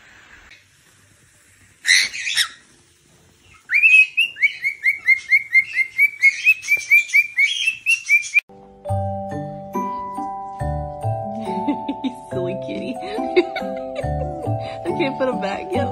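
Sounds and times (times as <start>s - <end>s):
cockatiel screech: 1.8s - 2.6s.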